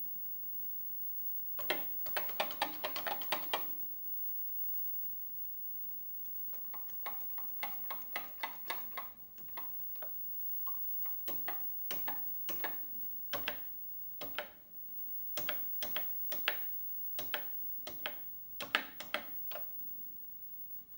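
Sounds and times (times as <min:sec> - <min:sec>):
keyboard keys clacking: 0:01.6 - 0:03.7, 0:06.6 - 0:14.6, 0:15.4 - 0:19.7.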